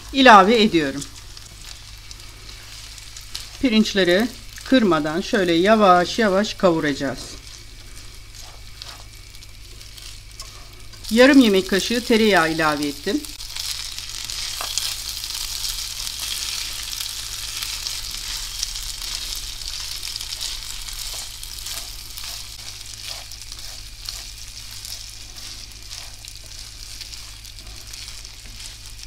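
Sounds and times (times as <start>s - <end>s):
rice sizzling in oil: 0.0s - 29.0s
spatula scraping pan: 7.2s - 11.1s, 14.2s - 29.0s.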